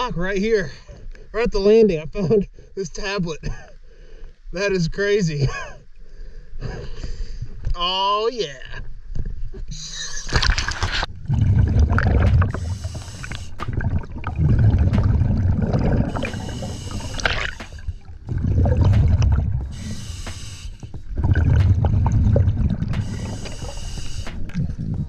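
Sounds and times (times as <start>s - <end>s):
gurgle of exhaled bubbles: 10.2s - 20.5s, 21.1s - 25.0s
regulator hiss on inhale: 12.5s - 13.8s, 16.1s - 18.1s, 19.7s - 21.2s, 23.0s - 25.0s.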